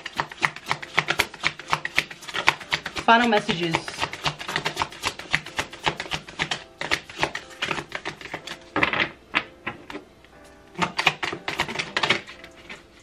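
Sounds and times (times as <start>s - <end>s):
cards being shuffled: 0.0s - 10.0s, 10.8s - 13.0s.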